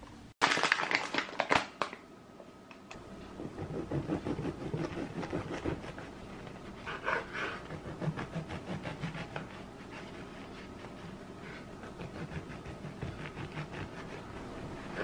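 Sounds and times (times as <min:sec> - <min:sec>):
bread knife sawing crusty loaf: 0:03.4 - 0:06.2, 0:07.2 - 0:10.8, 0:11.6 - 0:15.0.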